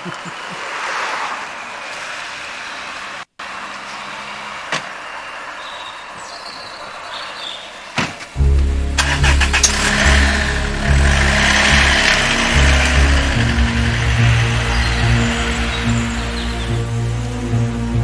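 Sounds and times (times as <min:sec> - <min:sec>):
thump: 0:08.0 - 0:08.2
car engine starting and running: 0:08.3 - 0:18.0.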